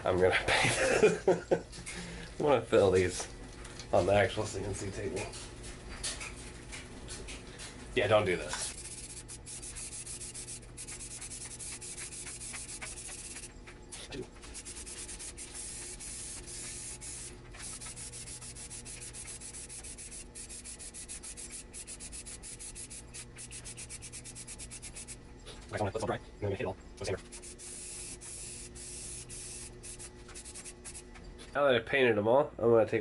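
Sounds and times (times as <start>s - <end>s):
spray-paint can hissing: 8.7s - 13.5s, 14.4s - 25.2s, 27.2s - 31.0s.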